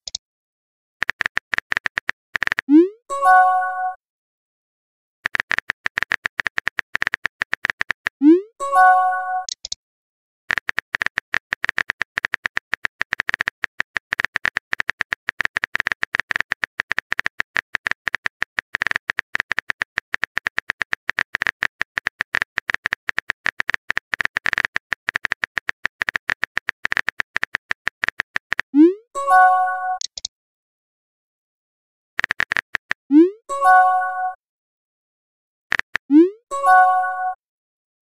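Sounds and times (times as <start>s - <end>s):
phone keyboard typing clicks: 1.0s - 2.8s, 5.2s - 8.2s, 9.4s - 9.8s, 10.5s - 28.7s, 30.0s - 30.3s, 32.2s - 33.1s, 35.7s - 36.1s.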